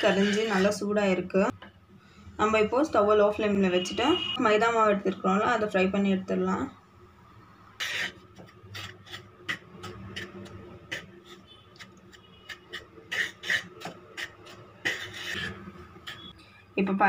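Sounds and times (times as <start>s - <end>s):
wooden spatula scraping a pan: 0.0s - 0.8s, 7.8s - 16.4s.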